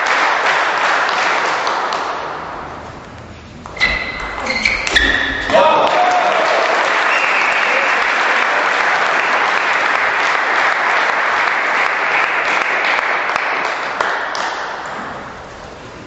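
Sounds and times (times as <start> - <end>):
audience applauding: 0.0 - 2.4, 5.5 - 14.9.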